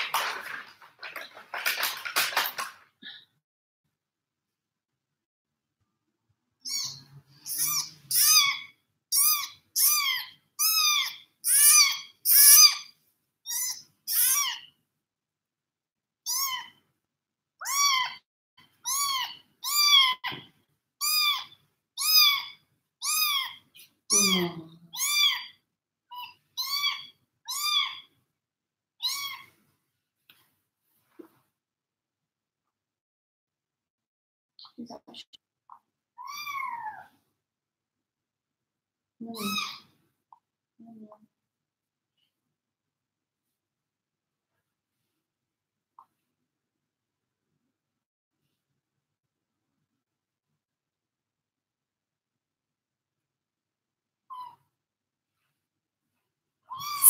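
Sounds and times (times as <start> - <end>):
kitten mewing: 56.7 - 57.0.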